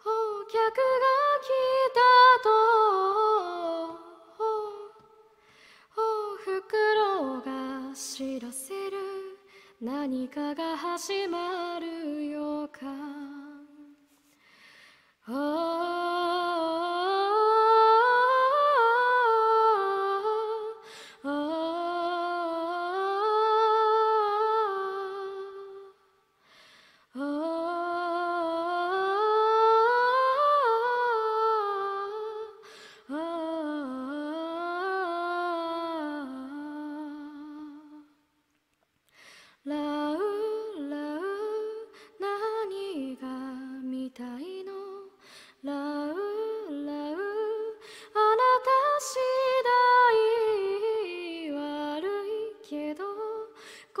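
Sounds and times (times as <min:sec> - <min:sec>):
singer breathing: 0:05.4 - 0:05.9, 0:14.1 - 0:15.2, 0:20.8 - 0:21.2, 0:26.4 - 0:27.1, 0:32.6 - 0:33.1, 0:39.1 - 0:39.6, 0:45.2 - 0:45.6, 0:47.8 - 0:48.2, 0:53.6 - 0:53.9.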